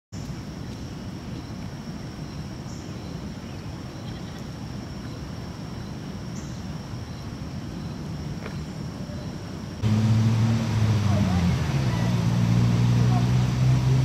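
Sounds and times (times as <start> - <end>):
low rumble: 9.8 - 14.0.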